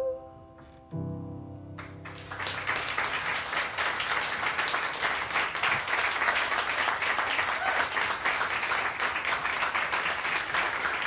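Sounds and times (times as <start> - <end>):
piano chord ringing: 0.0 - 3.7
audience applauding: 1.8 - 11.0.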